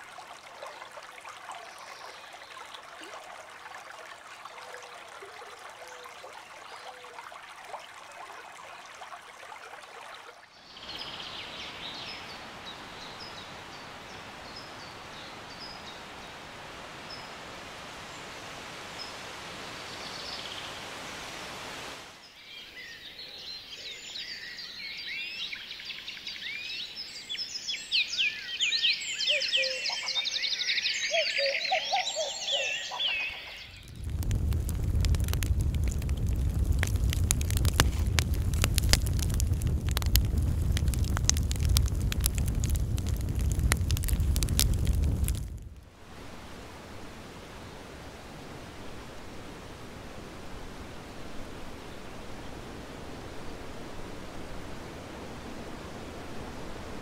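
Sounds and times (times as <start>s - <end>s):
water rushing: 0.0s - 22.3s, 31.0s - 57.0s
stream water flowing: 0.0s - 23.0s, 28.7s - 57.0s
songbirds singing: 22.2s - 34.6s
faint bird calls: 28.9s - 33.9s.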